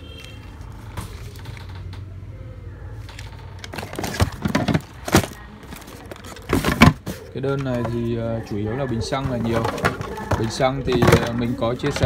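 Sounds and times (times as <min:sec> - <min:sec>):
plastic wrap crinkling: 0:03.2 - 0:08.2.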